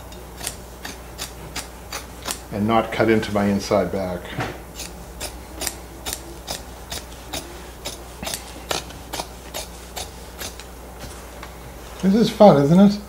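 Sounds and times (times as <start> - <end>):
scissors snipping thick fabric: 0.4 - 2.4, 4.8 - 11.2.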